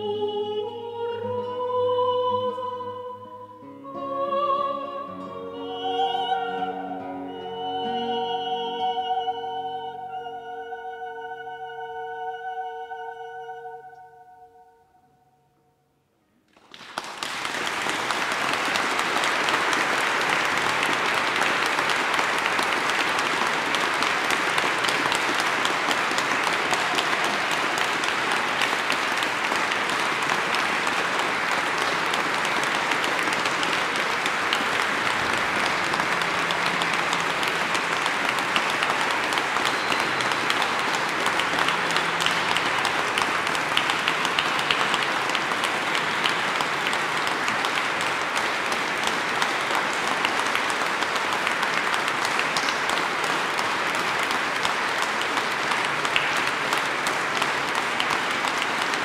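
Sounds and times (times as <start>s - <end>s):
audience applauding: 16.5s - 59.0s.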